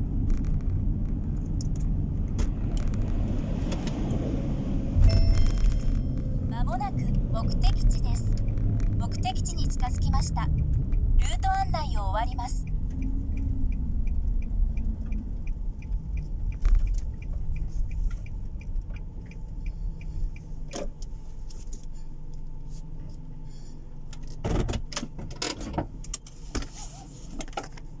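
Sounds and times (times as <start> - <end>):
car engine low rumble: 0.0 - 28.0
turn signal ticking: 5.0 - 25.1
sharp clicks and knocks in cabin: 20.7 - 21.6, 24.1 - 26.7.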